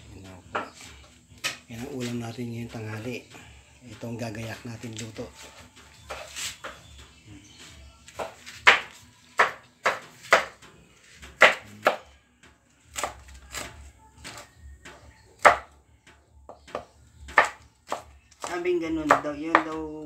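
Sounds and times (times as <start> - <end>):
knife chopping on wooden board: 0.5 - 0.8, 8.2 - 10.6, 11.3 - 12.1, 12.9 - 14.4, 15.4 - 15.8, 16.5 - 19.8.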